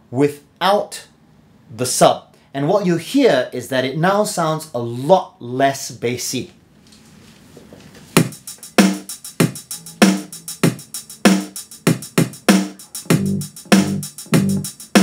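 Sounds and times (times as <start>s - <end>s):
band music through small speaker: 8.2s - 15.0s.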